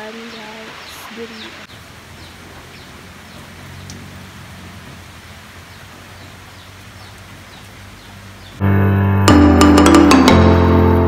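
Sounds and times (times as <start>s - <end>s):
rain hissing: 0.0s - 8.9s.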